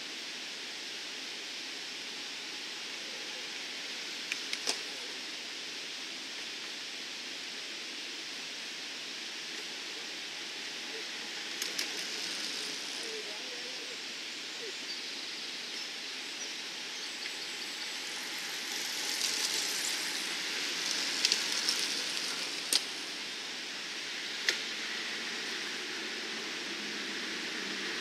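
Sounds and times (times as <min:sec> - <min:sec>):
bicycle tyres hissing on asphalt: 0:00.0 - 0:28.0
sharp bicycle clicks: 0:18.7 - 0:23.0.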